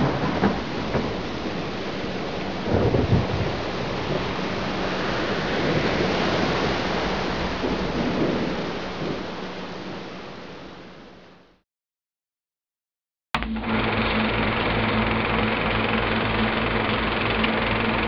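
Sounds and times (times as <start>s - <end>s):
thunder-like rumble: 0.0s - 11.0s
rain-like noise: 0.0s - 11.6s.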